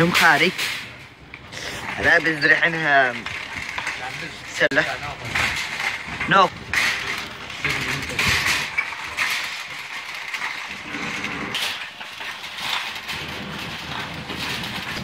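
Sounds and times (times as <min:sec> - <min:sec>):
wire shopping cart rattling: 0:00.0 - 0:15.0.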